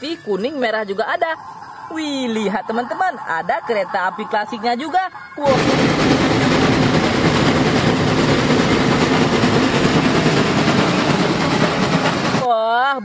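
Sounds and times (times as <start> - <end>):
steam train rumbling past: 5.0 - 12.7.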